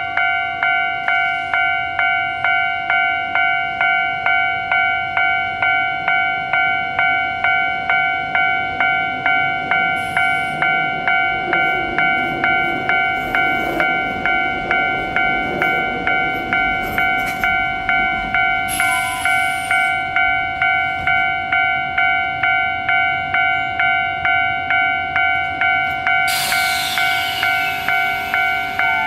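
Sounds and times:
electronic warning bell ringing: 0:00.0 - 0:29.0
train air hissing: 0:10.0 - 0:10.6, 0:18.7 - 0:20.0, 0:26.3 - 0:29.0.

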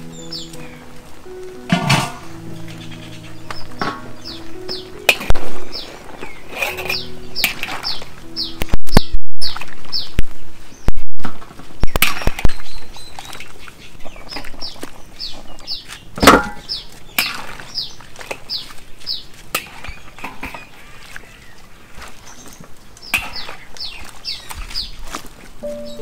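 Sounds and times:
bird chirping: 0:00.0 - 0:10.9, 0:12.1 - 0:19.3, 0:25.6 - 0:26.0.

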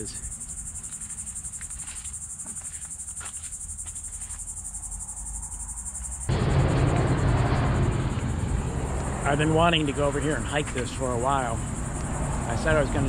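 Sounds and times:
insects trilling: 0:00.0 - 0:13.0
loud rush of noise: 0:06.3 - 0:13.0.

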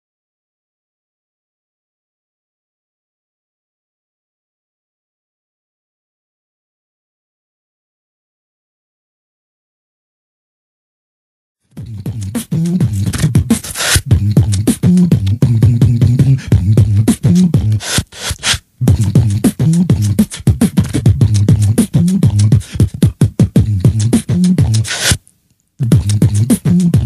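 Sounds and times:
beatboxing: 0:11.7 - 0:25.2, 0:25.8 - 0:27.0
hummed bass line: 0:11.8 - 0:17.8, 0:18.8 - 0:25.0, 0:25.8 - 0:27.0.

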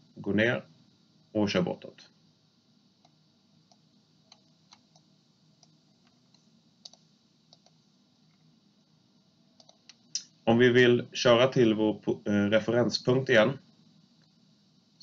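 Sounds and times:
mouse and keyboard clicks: 0:03.0 - 0:05.0, 0:05.6 - 0:07.8, 0:09.6 - 0:10.0.

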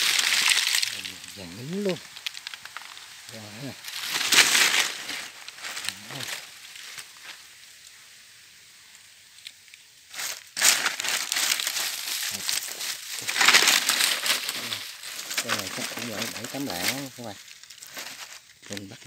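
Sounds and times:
rustling and crinkling: 0:00.0 - 0:08.0, 0:09.3 - 0:19.0.

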